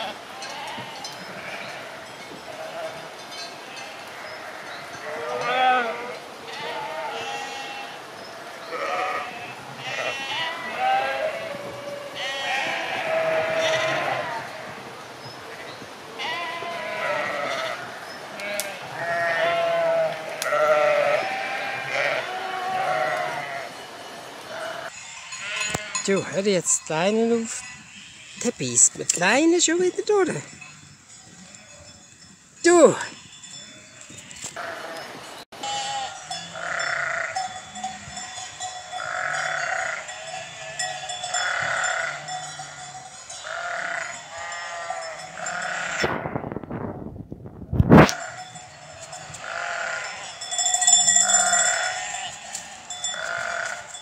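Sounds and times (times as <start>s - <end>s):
sheep bleating: 0.0s - 3.0s, 3.7s - 8.0s, 8.7s - 14.7s, 16.2s - 23.7s, 24.5s - 26.4s, 33.9s - 37.4s, 39.0s - 42.4s, 43.4s - 46.1s, 49.0s - 50.5s, 51.1s - 54.0s.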